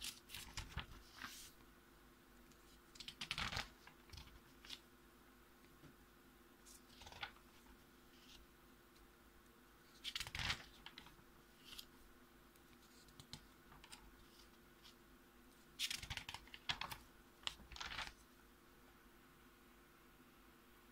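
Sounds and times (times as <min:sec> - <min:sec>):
notebook pages turning: 0:00.0 - 0:01.6, 0:03.0 - 0:04.8, 0:06.7 - 0:08.4, 0:10.0 - 0:11.9, 0:15.8 - 0:18.2.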